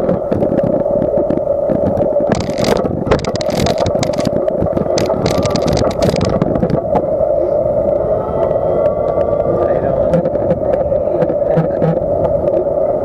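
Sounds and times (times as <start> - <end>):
bicycle rolling on wooden planks: 0.0 - 7.1, 8.4 - 12.7
hissing rattle: 2.3 - 6.8.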